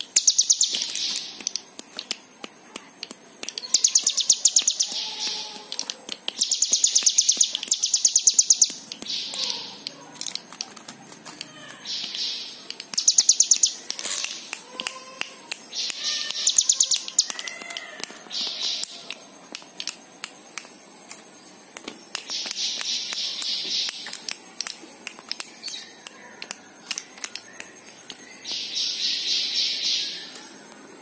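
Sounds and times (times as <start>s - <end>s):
bird sharp ticks: 0.0s - 21.2s, 21.8s - 28.9s
bird giving buzzy high trills: 3.5s - 10.0s, 11.4s - 19.1s.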